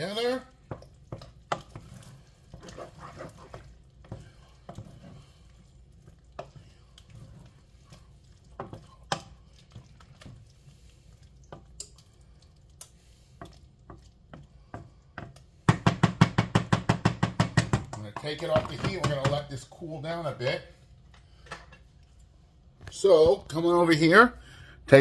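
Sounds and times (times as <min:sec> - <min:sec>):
spoon scraping thick filling: 0:00.0 - 0:11.2
spoon knocking against pot: 0:14.7 - 0:19.5.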